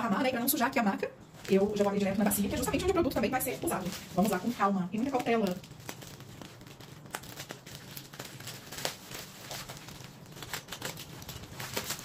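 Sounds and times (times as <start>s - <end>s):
plastic mailer crinkling: 1.2s - 12.0s.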